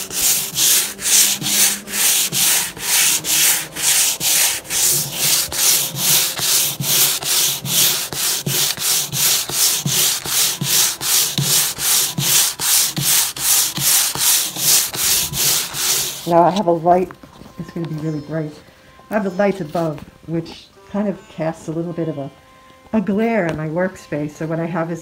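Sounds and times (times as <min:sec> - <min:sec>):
sandpaper sanding wood: 0:00.0 - 0:16.7.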